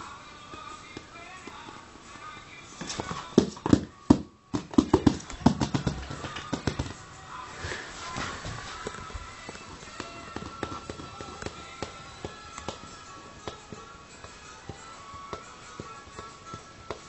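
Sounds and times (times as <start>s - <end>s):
kitten paws skittering on floor: 4.8s - 12.8s.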